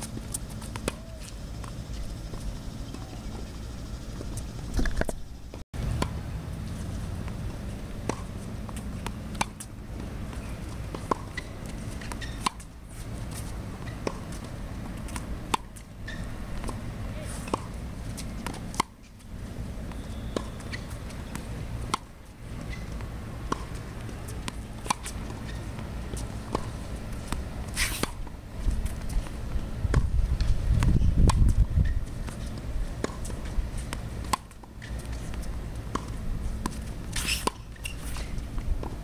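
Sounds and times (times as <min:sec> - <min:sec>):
tennis ball bouncing on court: 0:00.0 - 0:03.5, 0:05.8 - 0:06.2, 0:06.9 - 0:39.0
tennis ball hit by racket: 0:05.8 - 0:06.2, 0:07.2 - 0:12.7, 0:13.3 - 0:14.4, 0:19.7 - 0:29.0, 0:33.0 - 0:39.0.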